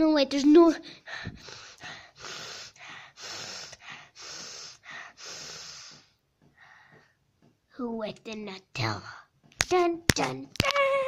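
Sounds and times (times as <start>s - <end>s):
person breathing hard: 0.8s - 7.2s.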